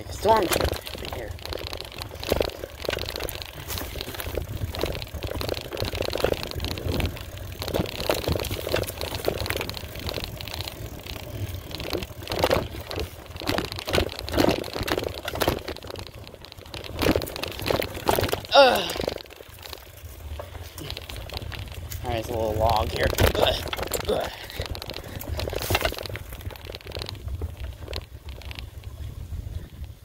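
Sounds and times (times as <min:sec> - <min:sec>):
bike rattling: 0:00.0 - 0:30.0
bike tyres rumbling on dirt: 0:00.0 - 0:30.0.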